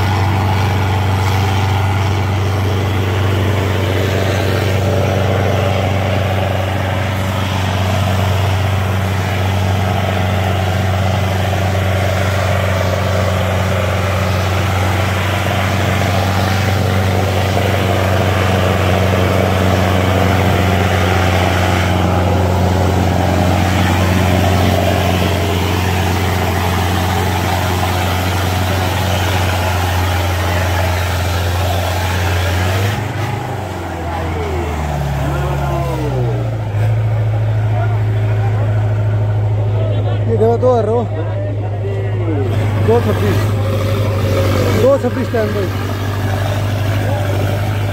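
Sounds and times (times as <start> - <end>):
tractor diesel engine under load: 0.0 - 47.9.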